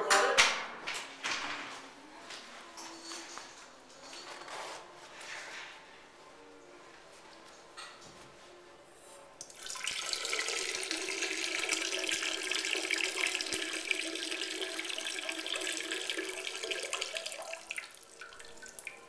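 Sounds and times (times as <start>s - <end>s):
urine running into toilet water: 9.4s - 19.0s.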